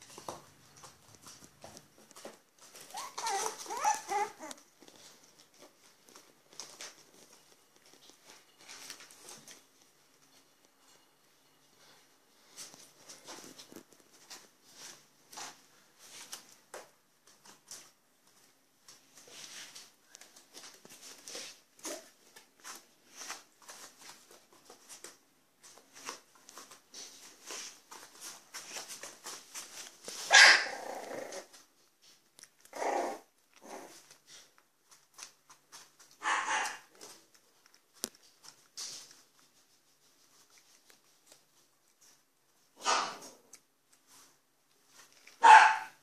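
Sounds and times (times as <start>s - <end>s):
paws scuffling on floor: 0.0s - 46.0s
dog barking: 30.3s - 30.7s, 36.2s - 36.8s, 45.4s - 46.0s.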